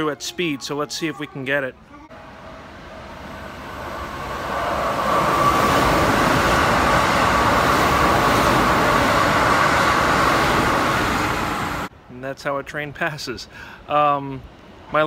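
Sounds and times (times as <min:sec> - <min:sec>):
train passing at speed: 0:02.1 - 0:11.9.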